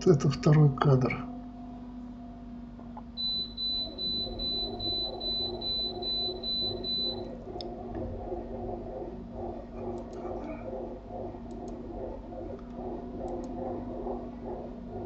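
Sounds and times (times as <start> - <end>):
soft rhythmic pulsing: 0.0 - 15.0
steady low hum: 0.0 - 15.0
high-pitched electronic beep: 3.2 - 7.3.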